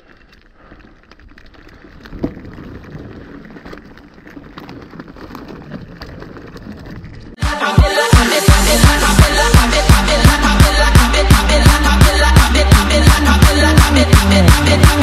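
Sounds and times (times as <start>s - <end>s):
bike tyres crunching over gravel: 0.0s - 7.4s
music with heavy beat: 7.4s - 15.0s.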